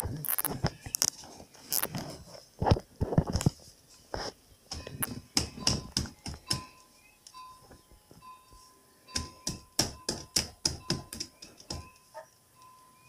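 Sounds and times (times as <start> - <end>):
mallet tapping nails: 4.7 - 6.7, 9.2 - 12.0.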